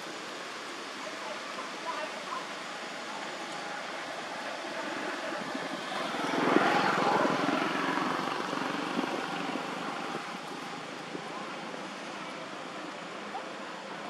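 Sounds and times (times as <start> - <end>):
engine passing by: 4.0 - 11.0.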